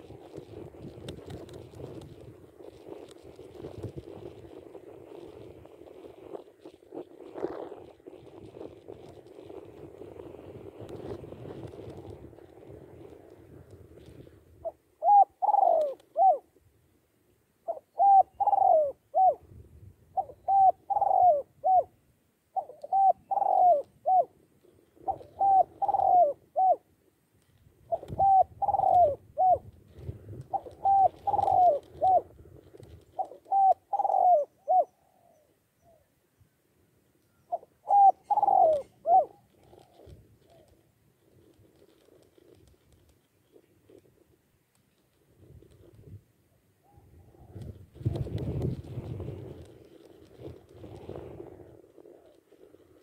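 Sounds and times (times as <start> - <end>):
dove cooing: 14.0 - 16.5, 17.6 - 19.5, 20.1 - 24.4, 25.0 - 26.9, 27.9 - 36.1, 37.4 - 40.9, 46.8 - 53.0.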